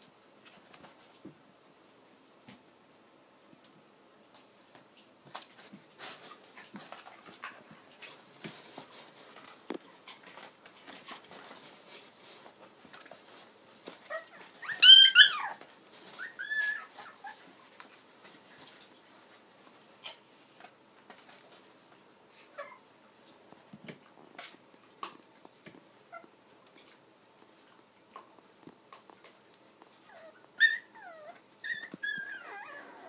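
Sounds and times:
faint clicks and taps: 6.6 - 14.1
dog whining: 14.1 - 15.6, 16.2 - 17.4, 30.1 - 33.0.

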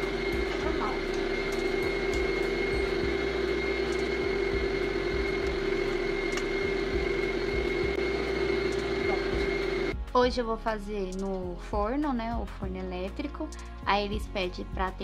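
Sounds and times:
thin high whine: 0.0 - 10.0
steady machine hum: 0.0 - 11.3.

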